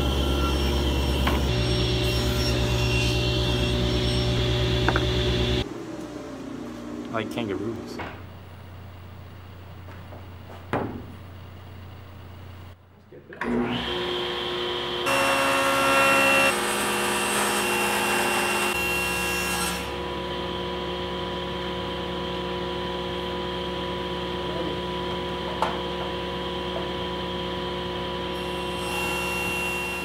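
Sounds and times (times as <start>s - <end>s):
table saw cutting panel: 0.0s - 5.6s, 13.4s - 22.5s, 25.2s - 30.0s
shop machinery humming: 0.0s - 30.0s.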